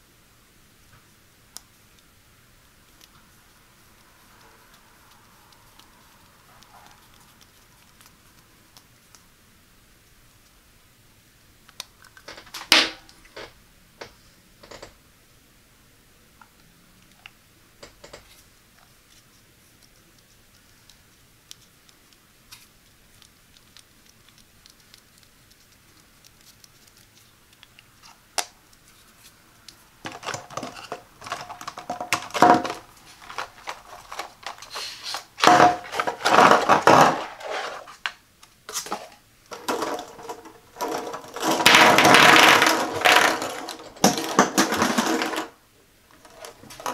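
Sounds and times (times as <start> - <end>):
plastic sticks clattering and rattling: 12.2 - 13.5, 30.0 - 46.9.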